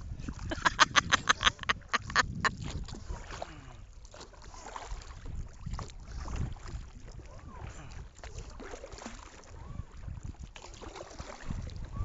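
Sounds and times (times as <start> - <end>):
wind and water rumble: 0.0 - 12.0
woman laughing: 0.3 - 2.5.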